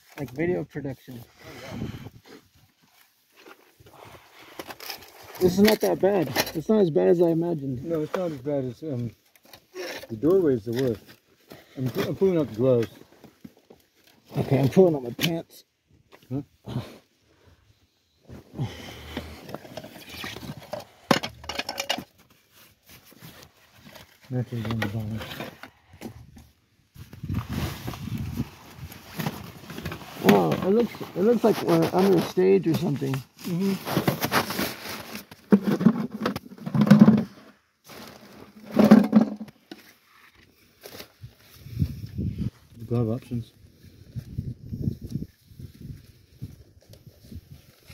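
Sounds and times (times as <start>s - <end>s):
plastic bucket scraping on dirt: 18.6s - 22.1s, 22.9s - 26.2s, 27.2s - 39.8s
items rattling in plastic bucket: 19.3s - 22.2s, 33.8s - 39.8s.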